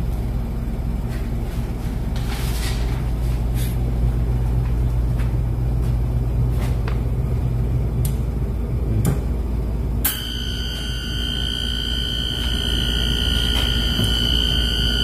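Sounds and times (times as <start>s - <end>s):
high-pitched tone: 10.1s - 15.0s.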